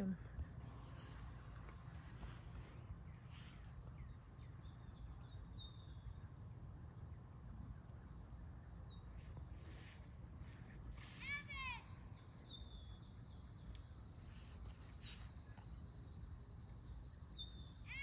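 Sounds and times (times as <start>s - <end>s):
faint bird chirps: 0.0s - 18.0s.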